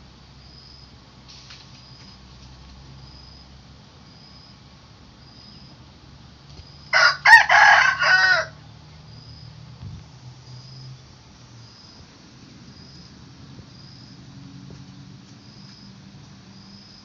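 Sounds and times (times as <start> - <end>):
rooster crowing: 6.9 - 8.6.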